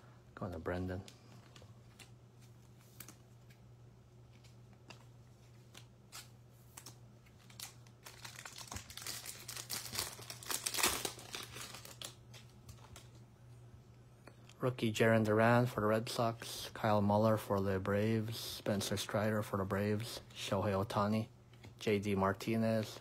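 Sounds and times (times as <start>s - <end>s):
foil wrapper crinkling: 6.1s - 13.1s.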